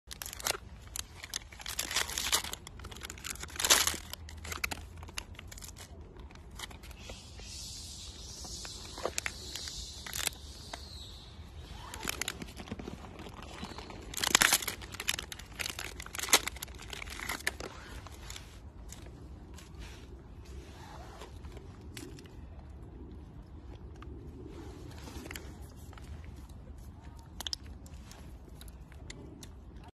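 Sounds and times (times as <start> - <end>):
plastic wrapper crinkling and tearing: 0.0 - 19.8, 25.0 - 29.6.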